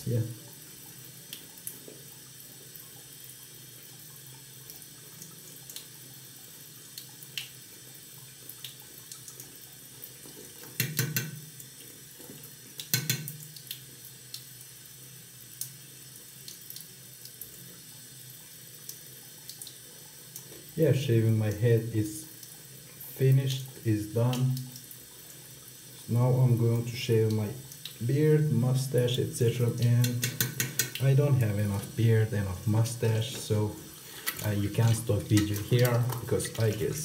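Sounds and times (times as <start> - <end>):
tap running into sink: 10.3 - 11.5, 12.2 - 13.5, 29.9 - 31.1, 34.2 - 37.0.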